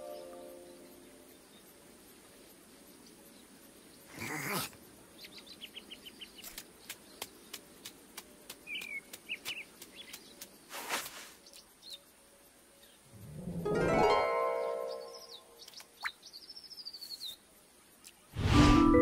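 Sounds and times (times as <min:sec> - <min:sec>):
faint ambience: 0:00.0 - 0:19.0.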